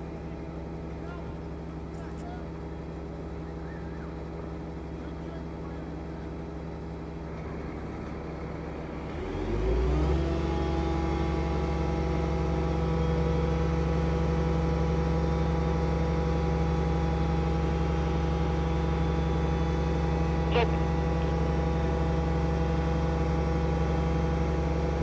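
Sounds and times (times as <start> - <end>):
engine running and revving: 8.9 - 25.0.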